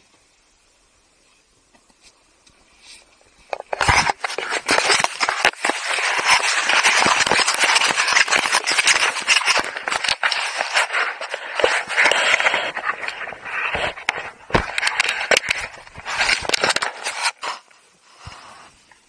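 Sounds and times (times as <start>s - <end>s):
skis scraping over snow: 3.6s - 17.7s.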